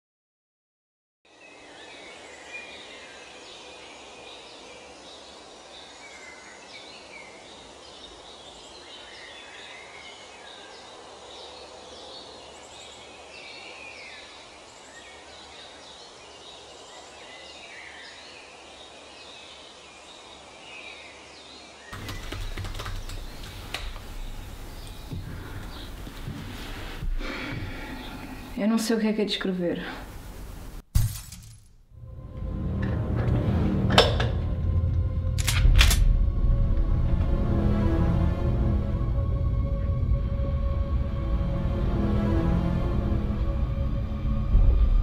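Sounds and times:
small birds chirping: 1.3s - 30.6s
background hiss: 1.3s - 31.9s
low hum: 31.6s - 45.0s
sharp clicks: 35.3s - 36.1s.

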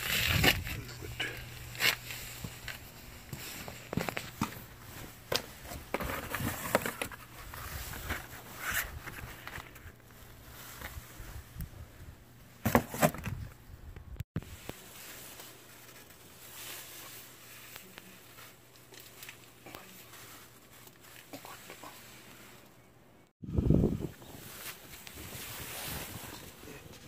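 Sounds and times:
cardboard box rustling and tapping: 12.6s - 13.4s.

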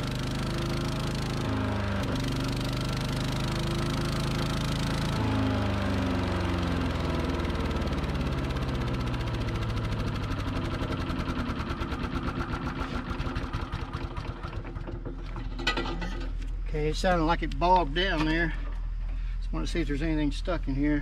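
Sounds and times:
small gasoline engine bogging down: 0.0s - 16.5s.

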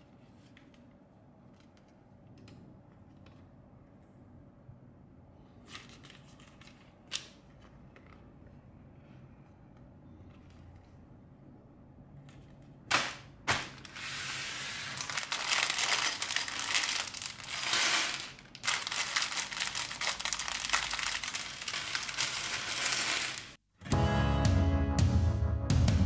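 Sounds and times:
plastic bag crinkling: 13.5s - 23.6s
plastic bag ripping: 13.5s - 23.6s.

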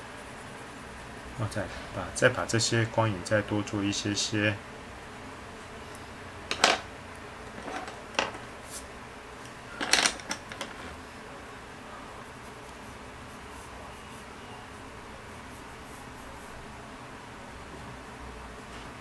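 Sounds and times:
wooden pencils clattering: 6.5s - 6.9s, 7.5s - 8.5s, 9.8s - 11.0s.

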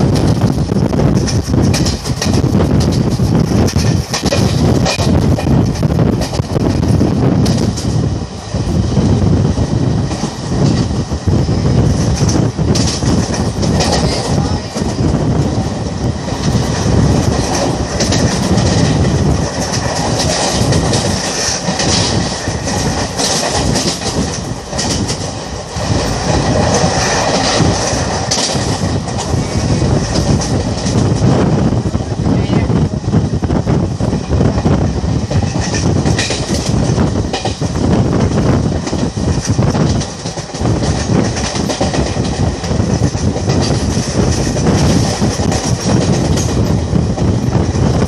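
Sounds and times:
wheels clacking over rail joints: 0.0s - 8.1s, 11.7s - 31.5s, 34.2s - 48.0s
train wheels rumbling on rails: 0.0s - 48.0s.

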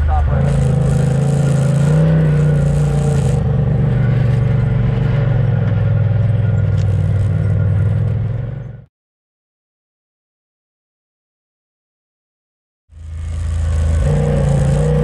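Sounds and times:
utility vehicle engine running: 0.0s - 8.9s, 12.9s - 15.0s.

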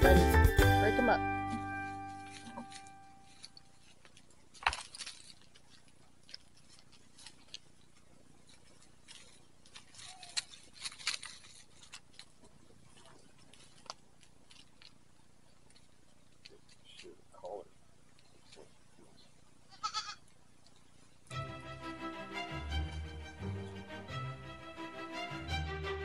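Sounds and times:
goat hooves tapping and scuffing: 1.6s - 17.2s.

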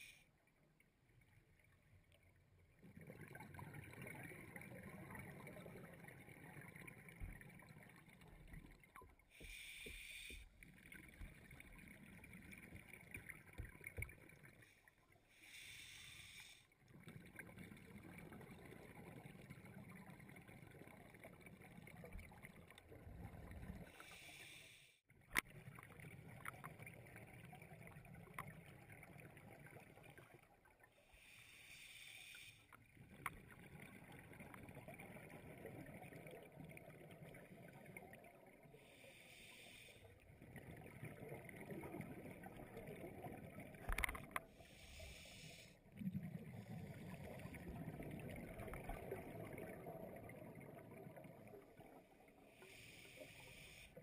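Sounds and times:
regulator hiss on inhalation: 9.4s - 10.5s, 15.4s - 16.6s, 24.0s - 25.0s, 31.2s - 32.7s, 38.9s - 40.0s, 44.7s - 45.8s, 52.6s - 54.0s
exhaled bubbles rumbling: 40.4s - 44.5s, 45.9s - 52.4s.

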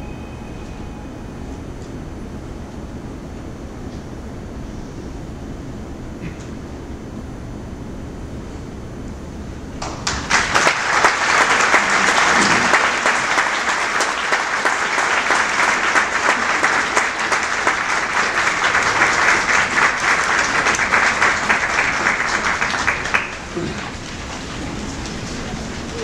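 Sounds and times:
large crowd applauding: 9.8s - 26.0s.

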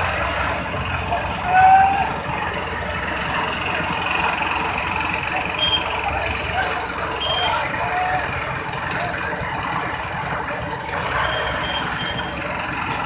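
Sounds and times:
fire engine running: 0.0s - 13.0s
people shouting: 1.0s - 2.2s, 6.5s - 8.3s.

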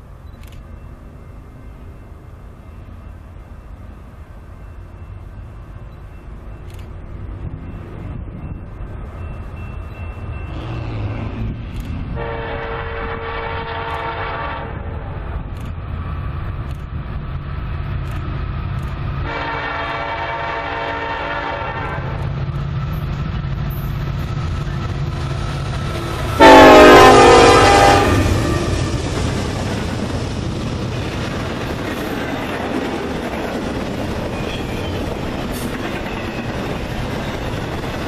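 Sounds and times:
train rumbling: 0.0s - 38.0s
locomotive air horn blasts: 12.2s - 14.8s, 19.2s - 22.2s, 26.0s - 28.8s.

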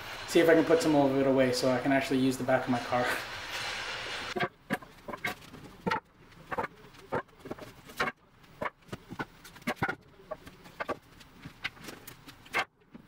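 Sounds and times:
wooden boards knocking and clattering: 4.4s - 13.0s.

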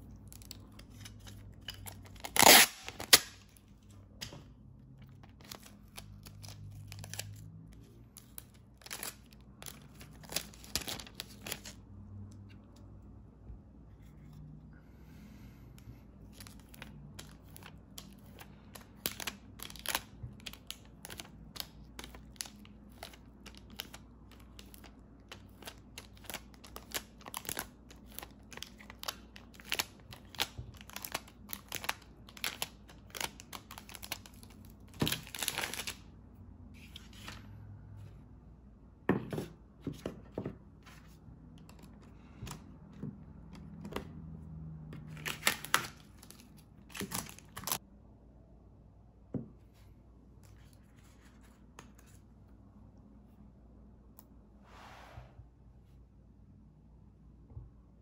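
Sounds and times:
plastic film crackling: 16.3s - 36.0s, 45.2s - 47.8s.

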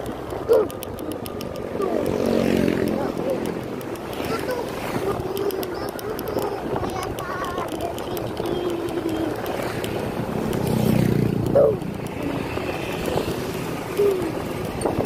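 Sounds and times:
motorcycle engine running: 0.0s - 15.0s
road and wind noise: 0.0s - 15.0s.

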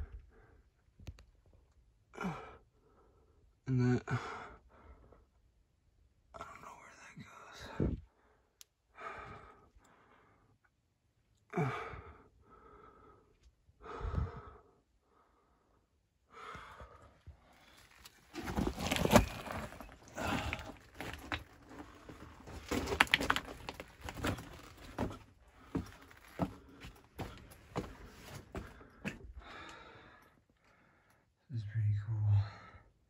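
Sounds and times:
person breathing hard: 7.8s - 10.5s, 11.5s - 18.0s, 20.1s - 21.2s, 24.2s - 31.3s
footsteps on loose rock: 17.7s - 29.2s
rocks knocking: 18.3s - 26.6s.

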